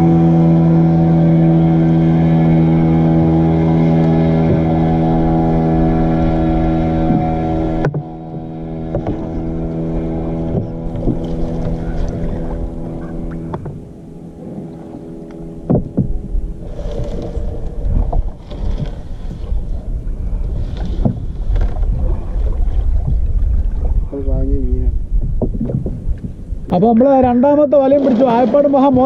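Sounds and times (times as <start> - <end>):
steady multi-pitched hum: 0.0 - 18.4
wind on microphone: 0.0 - 29.0.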